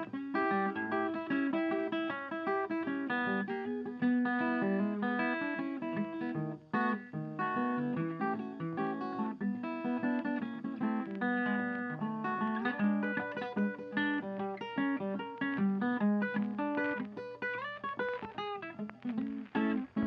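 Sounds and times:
plucked guitar music: 0.0s - 20.0s.

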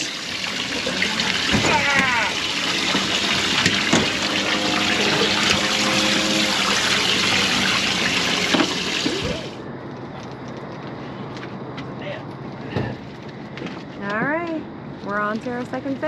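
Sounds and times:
water rushing and splashing: 0.0s - 9.6s.

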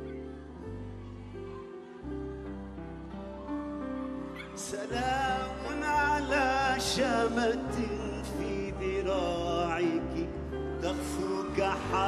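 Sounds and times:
man singing ornamented vocals: 4.5s - 12.0s.

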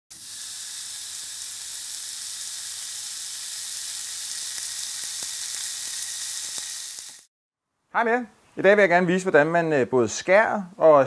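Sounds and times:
steaks sizzling on grill: 0.1s - 7.3s
small crackles: 1.3s - 7.3s.

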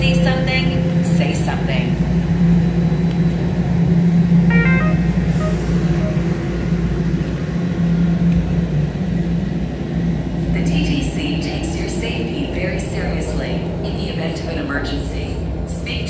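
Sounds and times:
subway train humming: 0.0s - 16.0s
short pitched sound: 4.5s - 6.8s.

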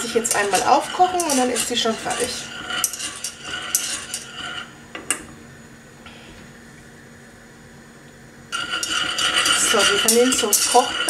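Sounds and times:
whisk clinking against pot: 0.0s - 4.4s, 8.6s - 11.0s
whisk scraping in a pot: 0.0s - 4.7s, 8.6s - 11.0s.

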